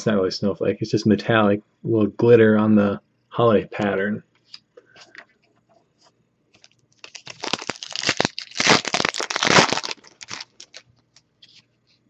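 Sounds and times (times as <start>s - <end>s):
foil wrapper crinkling: 6.6s - 11.6s.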